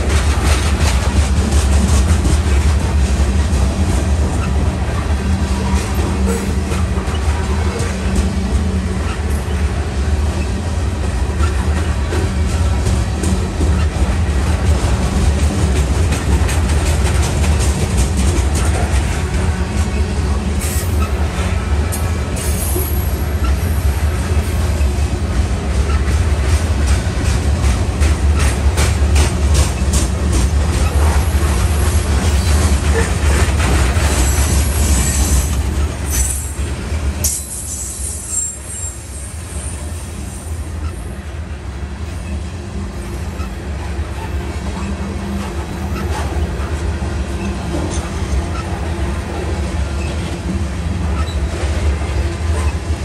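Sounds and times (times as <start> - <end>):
wheels clacking over rail joints: 0.0 - 38.6, 42.0 - 52.8
freight train rumbling: 0.0 - 53.0
wheel squeal: 37.2 - 39.8, 51.2 - 51.4.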